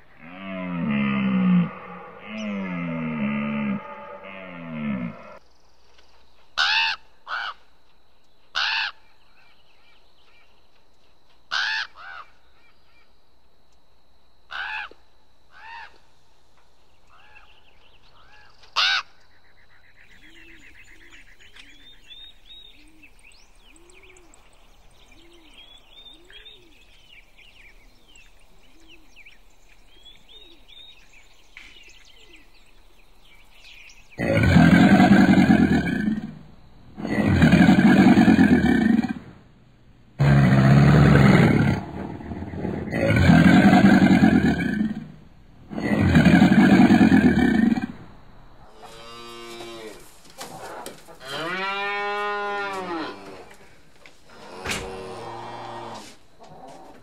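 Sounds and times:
bird croaking calls: 0.0 - 5.4, 8.6 - 9.0, 18.2 - 27.9, 34.1 - 39.4, 40.2 - 49.2
loud low growl: 34.2 - 39.4, 40.2 - 48.1.

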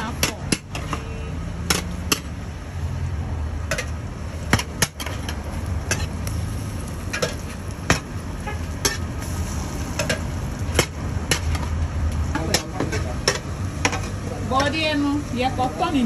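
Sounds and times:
metal spatula scraping frying pan: 4.7 - 6.2, 7.0 - 11.6.

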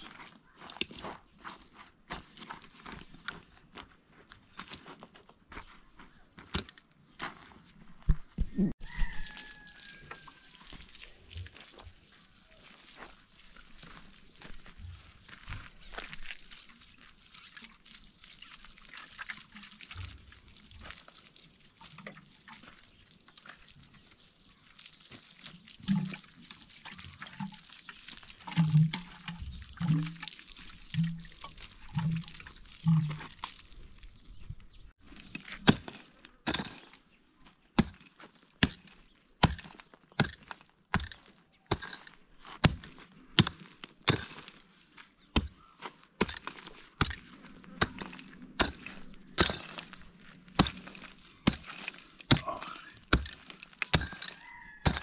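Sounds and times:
water pouring and splashing: 8.8 - 35.0, 45.4 - 55.0.

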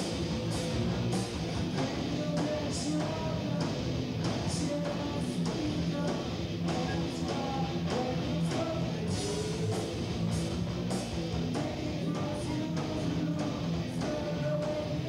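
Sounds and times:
drum kit: 0.0 - 15.0
electric guitars: 0.0 - 15.0.

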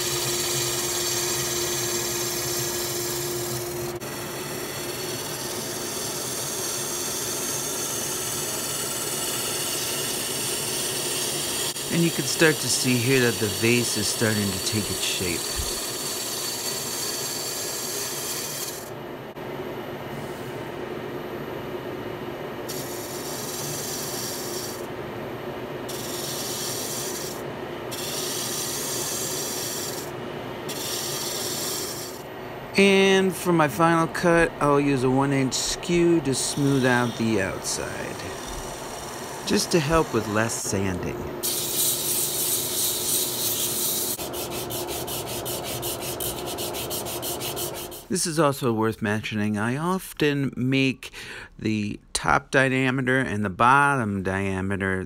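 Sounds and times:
turning tool cutting wood: 0.0 - 18.9, 22.7 - 24.9, 25.9 - 30.1, 30.7 - 32.2, 32.8 - 48.1
wood lathe hum: 0.0 - 19.0, 22.7 - 25.0, 25.9 - 48.1.

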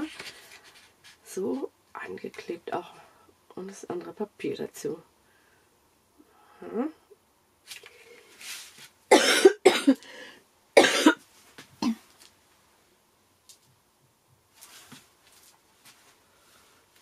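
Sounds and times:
woman coughing: 9.1 - 10.0, 10.8 - 11.2, 11.8 - 12.0.

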